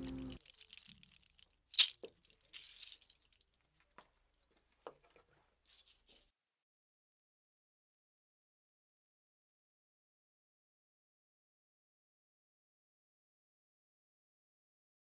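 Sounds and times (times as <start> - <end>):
guitar music: 0.0 - 0.4
short rustling: 0.0 - 6.4.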